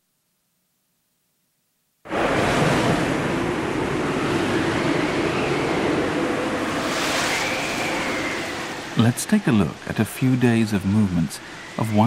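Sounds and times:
wind buffeting microphone: 2.1s - 11.8s
gale-force wind: 2.1s - 12.0s
heavy seas breaking: 2.1s - 12.0s
faint whistle in the wind: 3.3s - 9.0s, 10.9s - 12.0s.

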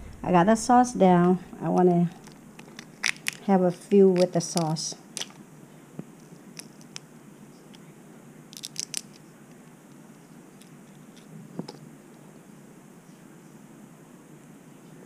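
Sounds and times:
crawfish shells cracking: 2.2s - 5.4s, 6.1s - 7.1s, 8.5s - 11.8s.

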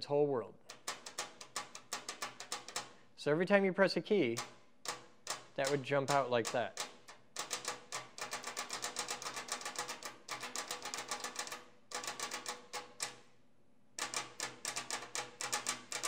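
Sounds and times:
solenoid clicking rapidly: 4.2s - 13.2s, 14.0s - 16.0s.

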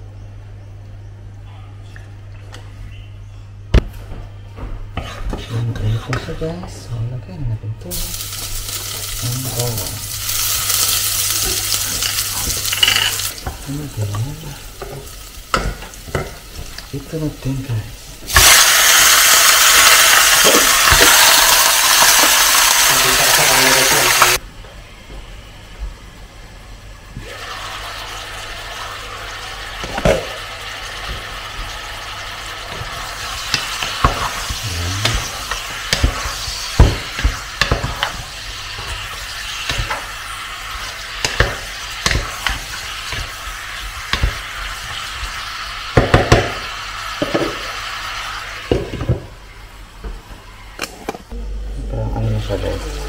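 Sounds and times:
wooden spatula scraping pot: 5.0s - 6.3s
meat sizzling in hot oil: 7.9s - 17.3s, 18.2s - 24.4s, 27.2s - 49.1s.

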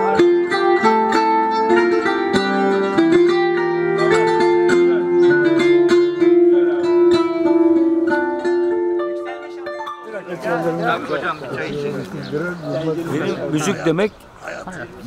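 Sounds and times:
plucked zither melody: 0.0s - 12.9s.

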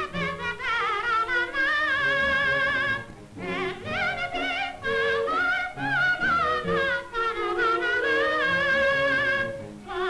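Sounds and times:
orchestral accompaniment: 0.0s - 10.0s
soprano singing with vibrato: 0.0s - 10.0s.

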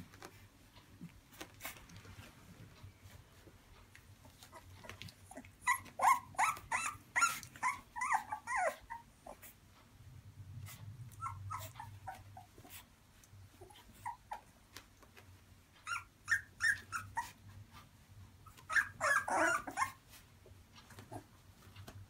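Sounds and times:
puppies whimpering and yipping: 4.2s - 9.6s, 10.7s - 12.9s, 13.5s - 14.7s, 15.8s - 21.4s.

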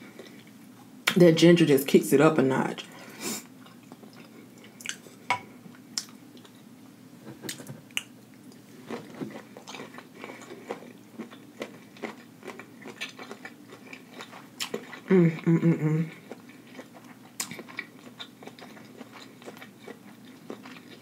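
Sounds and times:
chewing and mouth smacks: 3.6s - 5.0s, 5.7s - 6.6s, 7.5s - 15.1s, 16.1s - 21.0s.

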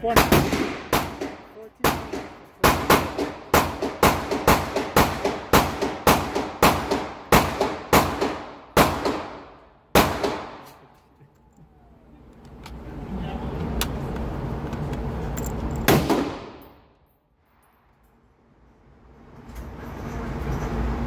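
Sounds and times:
rapid gunfire with echo: 0.1s - 10.6s.

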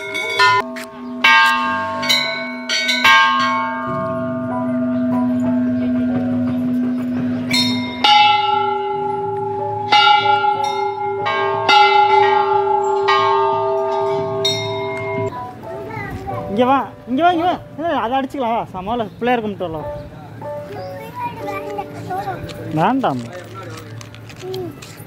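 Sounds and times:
temple bells ringing: 0.0s - 15.4s.

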